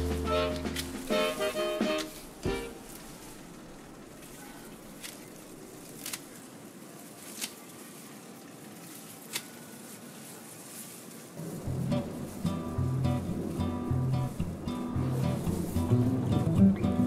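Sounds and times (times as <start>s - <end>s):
stalks snapping: 0.0s - 3.1s, 4.3s - 6.5s, 7.2s - 7.8s, 9.2s - 9.6s
rustling of dry grass stalks: 0.0s - 17.0s.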